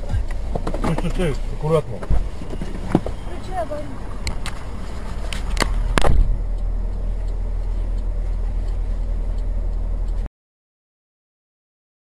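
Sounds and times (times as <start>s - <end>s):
car engine rumble: 0.0s - 10.3s
sharp clicks: 2.4s - 10.3s.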